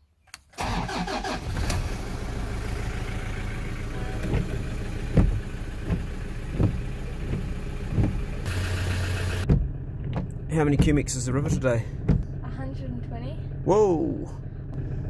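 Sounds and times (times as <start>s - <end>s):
car engine starting and idling: 0.4s - 15.0s
windscreen wipers knocking: 4.0s - 8.5s, 9.4s - 12.6s.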